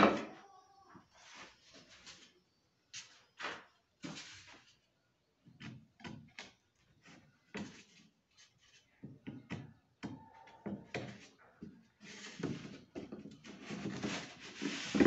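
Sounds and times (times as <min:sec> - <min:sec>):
wooden boards knocking and scraping: 0:12.3 - 0:15.0.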